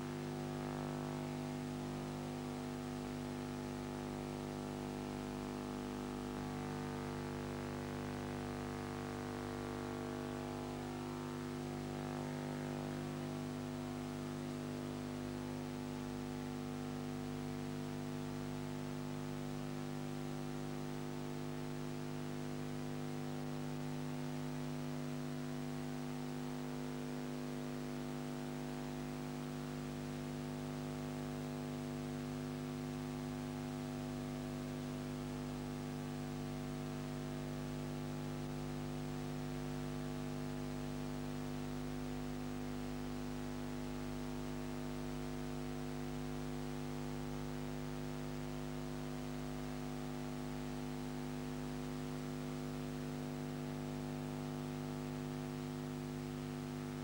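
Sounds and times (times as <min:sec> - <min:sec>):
electrical mains hum: 0:00.0 - 0:25.4.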